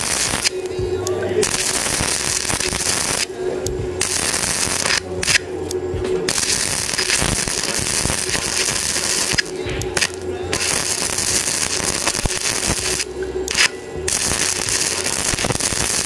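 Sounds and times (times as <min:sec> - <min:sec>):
arc welding sizzle: 0:00.0 - 0:16.0
low hum: 0:00.0 - 0:16.0.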